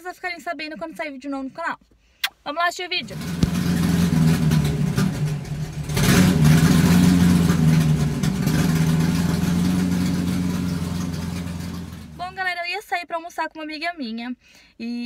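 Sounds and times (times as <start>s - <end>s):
car engine revving: 3.0s - 12.4s.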